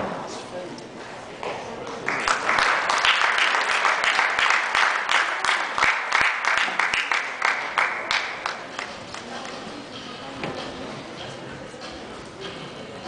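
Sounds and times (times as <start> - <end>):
audience applauding: 2.0 - 9.3.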